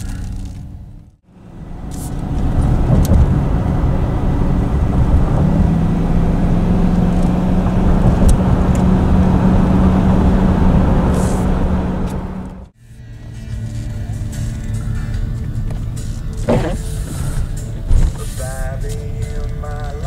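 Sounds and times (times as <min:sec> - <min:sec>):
low engine hum: 0:00.0 - 0:20.0
road noise: 0:00.0 - 0:20.0.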